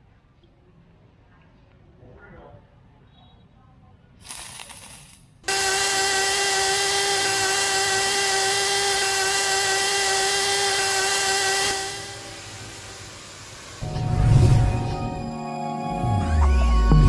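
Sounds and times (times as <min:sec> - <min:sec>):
small motor whining: 0:05.5 - 0:15.2.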